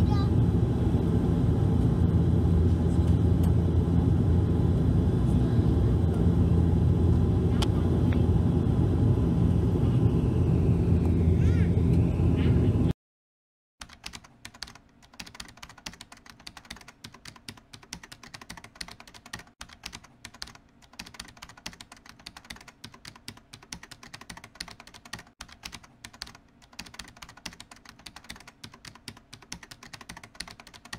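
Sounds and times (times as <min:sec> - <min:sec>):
rapid keyboard typing clicks: 0:13.8 - 0:30.9.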